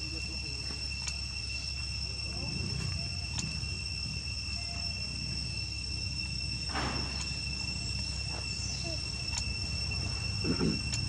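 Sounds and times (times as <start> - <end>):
high-pitched insect trill: 0.0 - 11.0.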